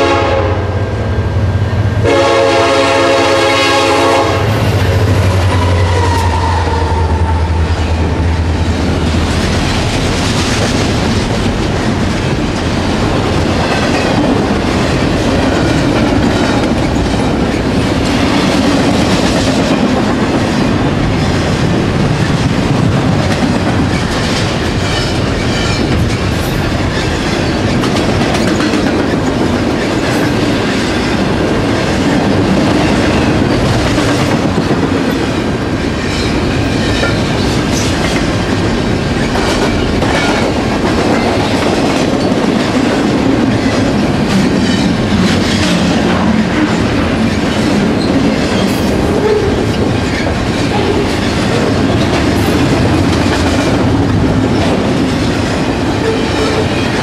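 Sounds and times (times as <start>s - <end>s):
freight train wheels rumbling: 0.0s - 57.0s
wheels clicking over rail joints: 22.3s - 57.0s.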